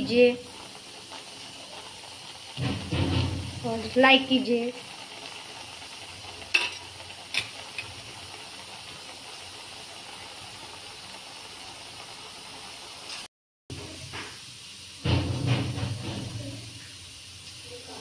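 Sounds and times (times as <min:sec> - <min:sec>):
milk bubbling and sizzling: 0:00.0 - 0:18.0
ladle clicking against pan: 0:06.3 - 0:08.0.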